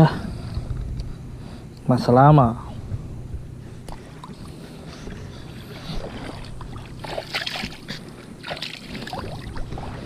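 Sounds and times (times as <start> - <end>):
water sloshing and splashing: 3.9 - 10.0.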